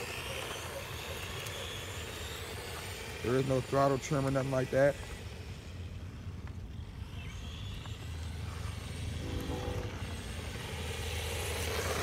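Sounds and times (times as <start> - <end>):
toy truck motor and tyres: 0.0 - 12.0
steady low rumble: 8.0 - 10.9.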